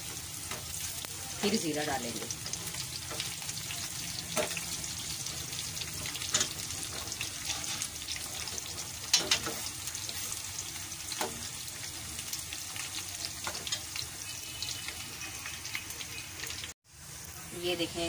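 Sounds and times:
onions sizzling in hot fat: 0.0 - 18.0.

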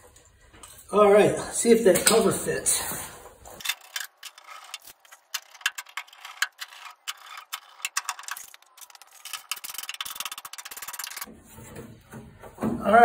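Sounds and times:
screwdriver clicking and scraping metal: 3.6 - 11.3.

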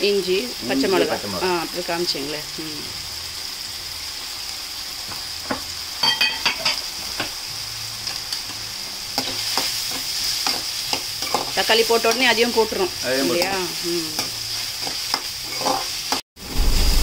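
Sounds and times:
vegetables sizzling in oil: 0.0 - 17.0
ladle scraping and clinking pan: 14.8 - 15.9.

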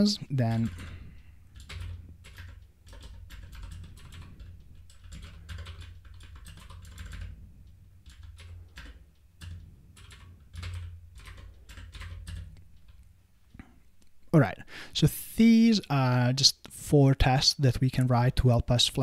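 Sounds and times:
typing on computer keyboard: 0.5 - 13.1.

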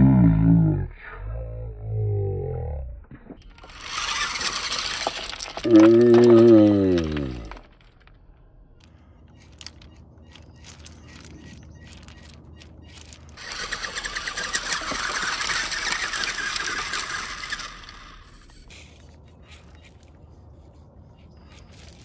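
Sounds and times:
electric motor whine: 3.4 - 6.4, 10.6 - 20.1
pebbles crunching under tyres: 3.4 - 22.0.

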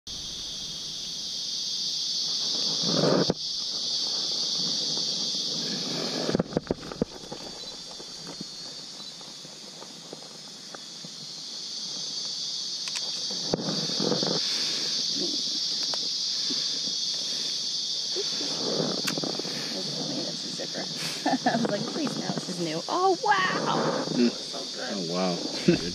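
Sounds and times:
high-pitched insect drone: 0.1 - 25.9
rustling: 2.2 - 22.8.

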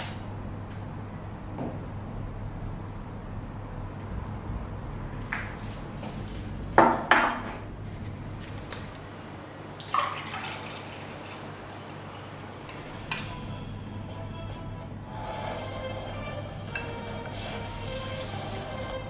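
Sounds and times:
drink poured into a glass: 9.8 - 13.3
tableware clinking: 12.6 - 13.4.

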